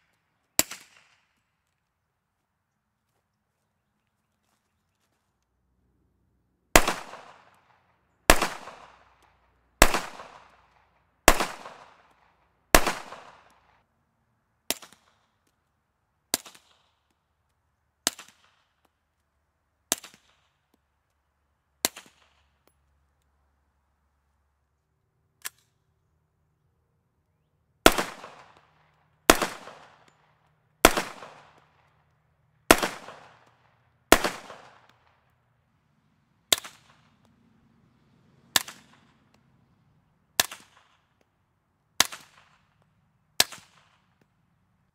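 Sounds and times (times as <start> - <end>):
loud pistol shots: 6.7 - 7.4, 8.3 - 9.0, 9.8 - 10.6, 11.3 - 12.1, 12.7 - 13.5, 27.8 - 28.6, 29.3 - 30.0, 30.8 - 31.6, 32.7 - 33.5, 34.1 - 34.9
loud carbine shots: 6.7 - 7.5, 8.3 - 9.1, 9.8 - 10.7, 11.3 - 12.1, 12.7 - 13.5, 27.8 - 30.1, 30.8 - 31.7, 32.7 - 33.5, 34.1 - 34.9.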